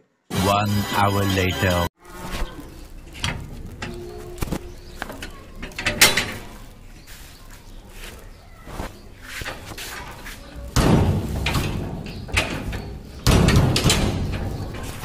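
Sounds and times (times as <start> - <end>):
plastic bag rustling: 2.0 - 10.8.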